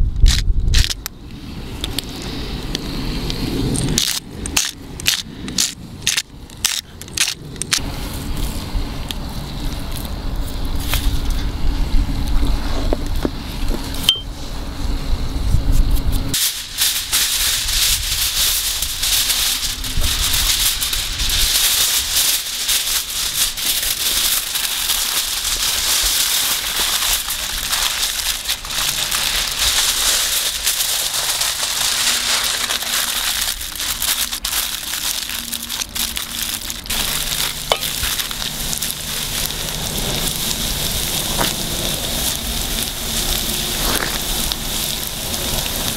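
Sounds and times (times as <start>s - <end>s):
aluminium foil crinkling: 1.7s - 11.4s, 16.3s - 45.9s
low rumble: 17.4s - 45.9s.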